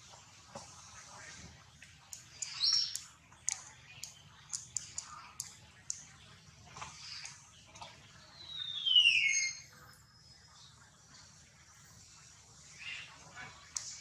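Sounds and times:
sharp clicks: 2.1s - 6.1s.

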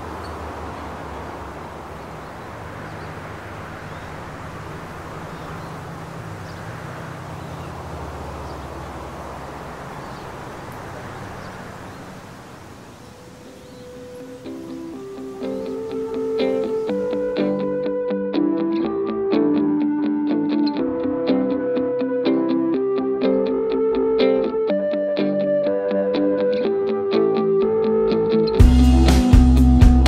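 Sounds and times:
distant traffic hum: 0.0s - 28.7s
faint bird chirps: 3.8s - 17.2s.

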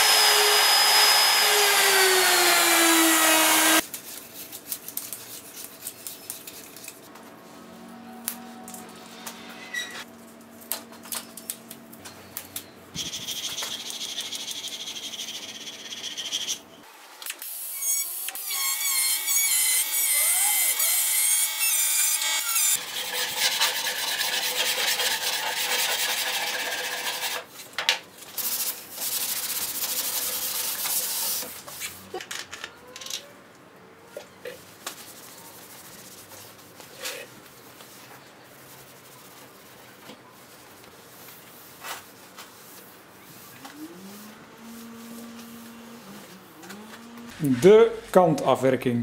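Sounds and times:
air tool whining and rasping: 0.0s - 3.8s.

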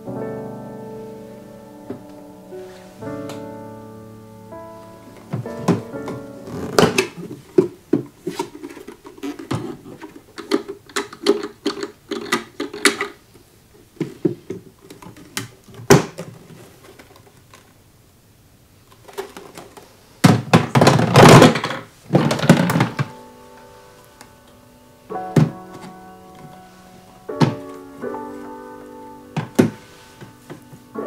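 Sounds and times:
plastic scraping: 5.2s - 13.2s, 13.9s - 17.8s, 18.9s - 23.2s.

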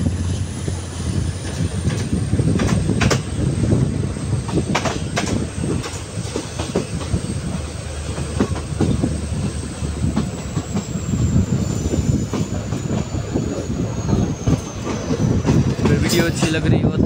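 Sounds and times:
train wheels rumbling on rail: 0.0s - 17.0s
wheels clicking over rail joints: 4.4s - 10.9s.

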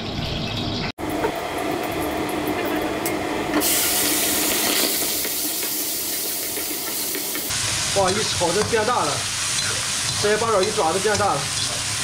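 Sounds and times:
octopus frying in hot oil: 3.6s - 12.0s.

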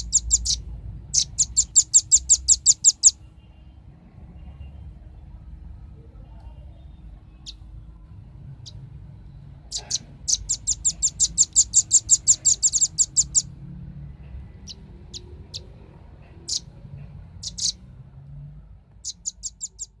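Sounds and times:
bird calling sharp high chips: 0.0s - 3.2s, 9.7s - 13.5s, 17.4s - 17.8s, 19.0s - 20.0s.

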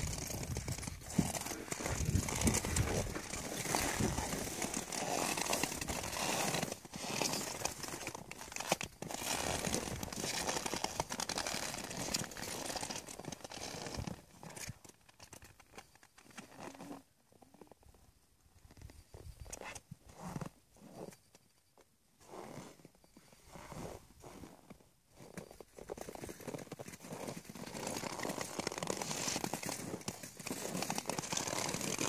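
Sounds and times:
boots crunching snow: 0.0s - 12.7s, 23.5s - 32.0s
hooves crunching crusted snow: 0.0s - 17.7s, 22.2s - 32.0s.

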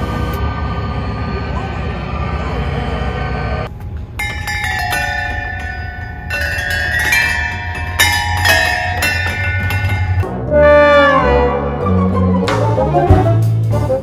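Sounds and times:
metal chime pipes ringing: 4.0s - 10.4s.

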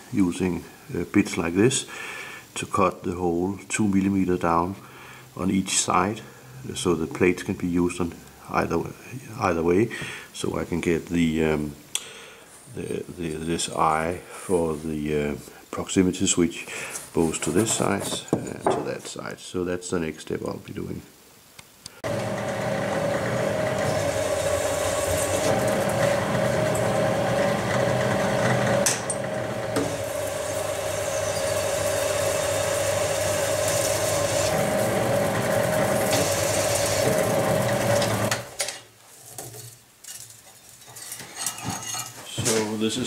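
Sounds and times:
drill press cutting metal: 22.0s - 38.5s.

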